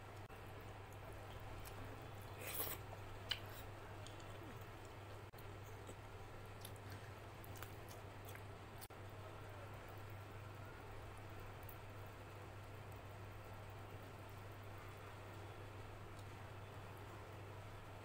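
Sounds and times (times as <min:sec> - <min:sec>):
steady low hum: 0:00.0 - 0:18.0
chewing: 0:00.8 - 0:08.9.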